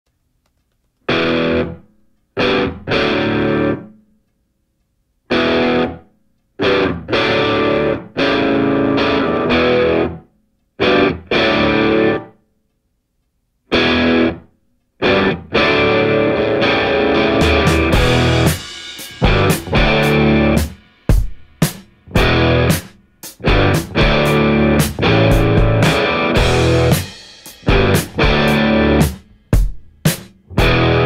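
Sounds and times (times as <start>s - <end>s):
distorted electric guitar stabs: 1.1s - 1.8s, 2.4s - 3.9s, 5.3s - 6.0s, 6.6s - 10.2s, 10.8s - 12.3s, 13.7s - 14.4s, 15.0s - 31.0s.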